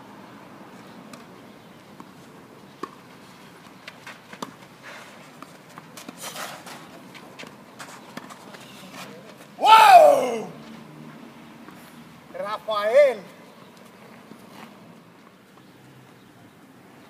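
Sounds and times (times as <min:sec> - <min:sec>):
tennis ball struck by rackets: 0:02.8 - 0:03.0, 0:04.3 - 0:04.6.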